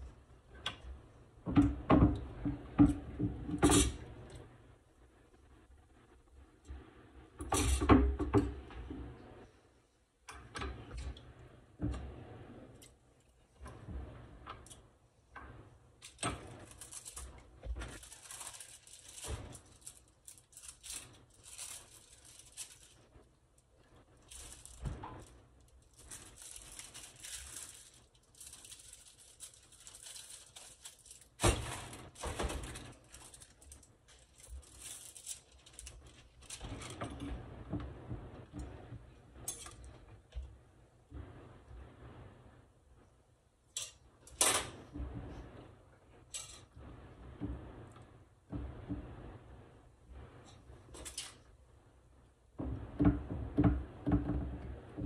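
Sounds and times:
plastic packaging crinkling: 0:16.0 - 0:37.3.

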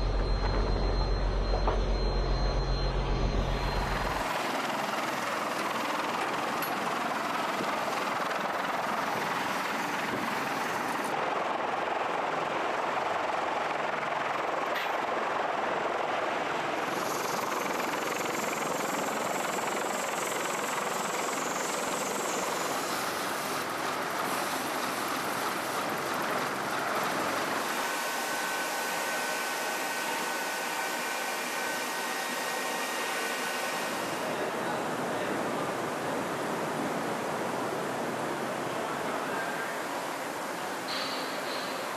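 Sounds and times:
faint high whine: 0:00.0 - 0:11.2, 0:16.7 - 0:36.9
aircraft engines rushing: 0:00.0 - 0:41.9.

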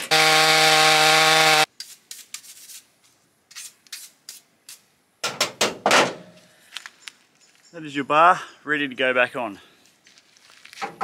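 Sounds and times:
chainsaw cutting: 0:00.0 - 0:01.7.

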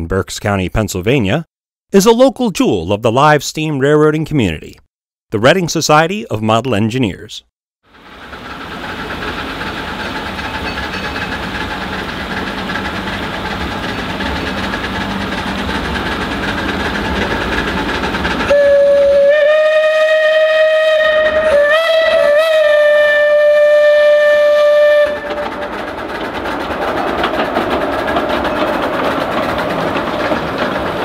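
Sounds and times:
steam train running rumble: 0:07.9 - 0:31.0
steam locomotive whistle: 0:18.5 - 0:25.9.

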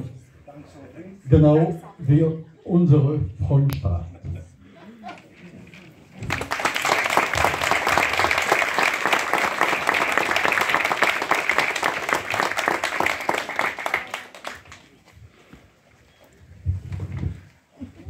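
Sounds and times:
crowd applauding: 0:06.2 - 0:14.9.

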